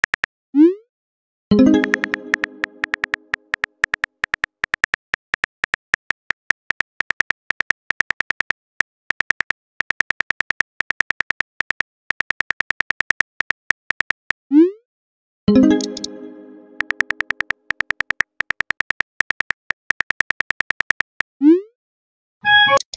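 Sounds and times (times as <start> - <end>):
high typing ticks: 0.0 - 0.3, 1.7 - 14.4, 16.8 - 21.3.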